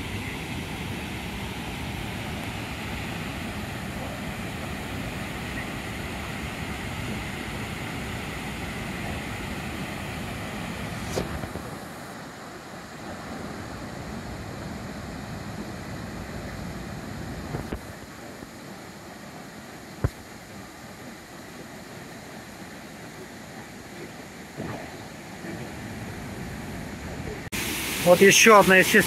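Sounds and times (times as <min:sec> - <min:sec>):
waterfall rushing: 0:26.1 - 0:29.0.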